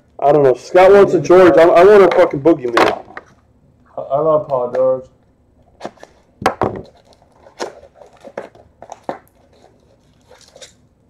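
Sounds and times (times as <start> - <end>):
wrapper crinkling: 6.0 - 10.9
card pack being torn open: 6.8 - 10.8.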